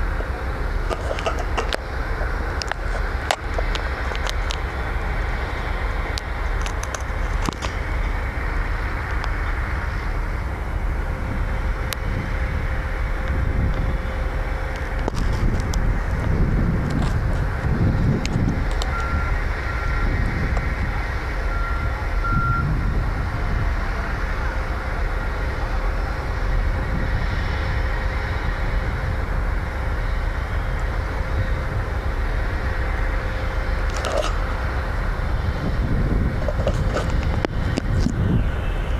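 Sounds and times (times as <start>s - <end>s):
faint steady whine: 0.0s - 38.9s
heavy construction machinery rumble: 0.0s - 38.9s.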